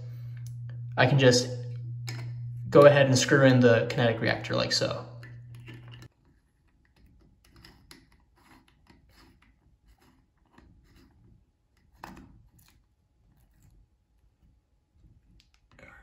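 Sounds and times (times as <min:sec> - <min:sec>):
low hum: 0:00.0 - 0:06.1.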